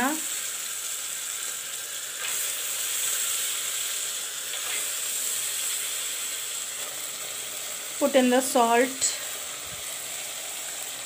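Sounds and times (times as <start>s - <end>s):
spices frying in oil: 0.0s - 11.0s.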